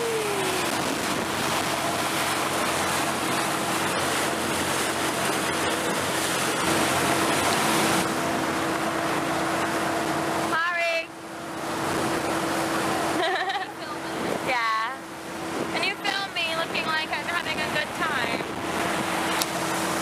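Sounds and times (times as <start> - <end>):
wind buffeting microphone: 0.0 - 10.4, 15.2 - 20.0
rush of wake water: 0.0 - 20.0.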